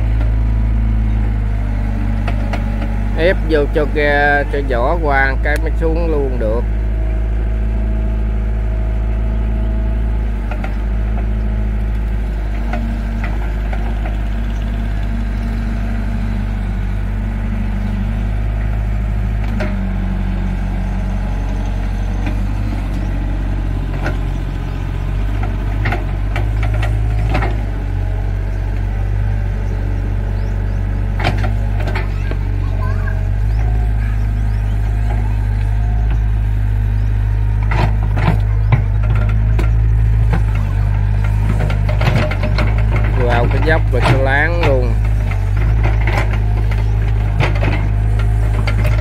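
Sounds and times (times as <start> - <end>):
excavator diesel engine running: 0.0 - 49.0.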